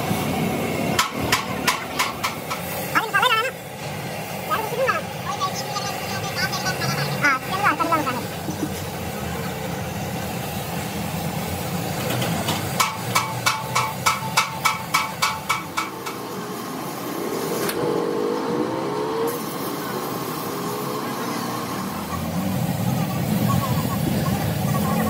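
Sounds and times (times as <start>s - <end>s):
ringing metal strikes: 12.8s - 16.1s.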